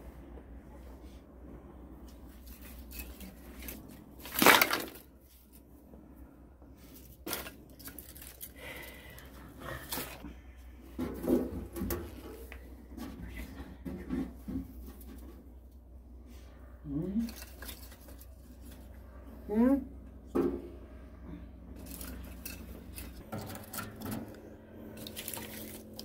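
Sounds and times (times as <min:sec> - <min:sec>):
objects knocking and clattering: 0:21.8 - 0:26.0.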